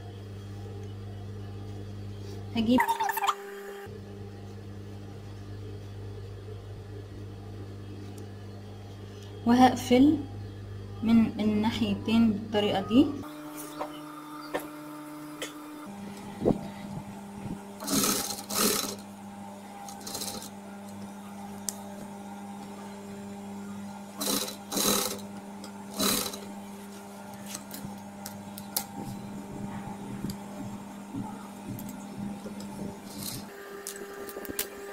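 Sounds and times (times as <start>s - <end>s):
industrial sewing machine stitching: 17.8s - 19.0s, 19.8s - 20.5s, 24.2s - 25.3s, 25.9s - 26.5s, 33.0s - 33.5s.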